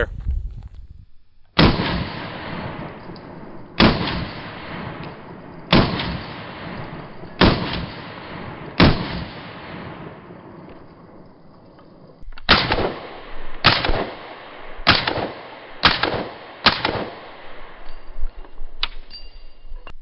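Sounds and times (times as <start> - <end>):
pistol shots echoing: 1.6 - 10.4, 12.5 - 17.9.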